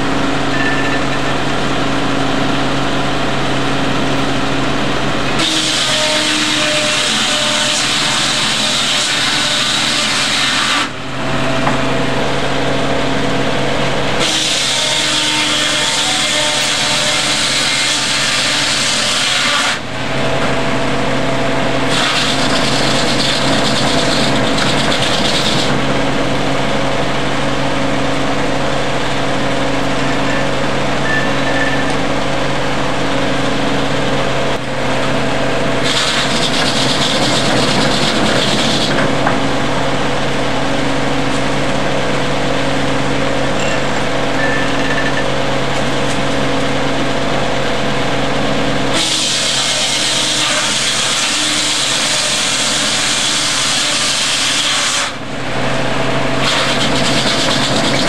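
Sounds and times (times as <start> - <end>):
sawmill machine hum: 0.0 - 58.0
saw blade ripping through log: 5.4 - 11.0, 14.2 - 19.8, 21.8 - 25.8, 35.8 - 39.0, 48.9 - 55.2, 56.4 - 58.0.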